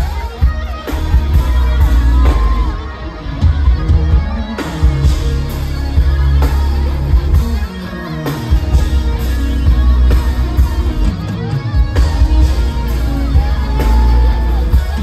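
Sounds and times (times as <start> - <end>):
electric guitar: 0.0 - 15.0
heavy bass: 0.0 - 15.0
live rock band playing: 0.0 - 15.0.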